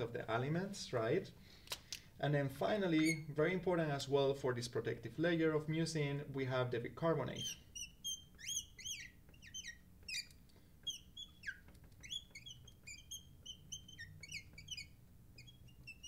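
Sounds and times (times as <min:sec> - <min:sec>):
marker squeaking on glass: 0:03.0 - 0:03.3, 0:07.3 - 0:16.0.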